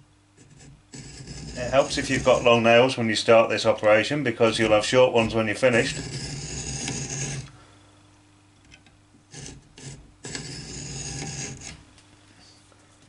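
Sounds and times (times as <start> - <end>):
hacksaw rasping on steel: 0.4 - 2.7, 4.6 - 7.5, 9.3 - 11.8.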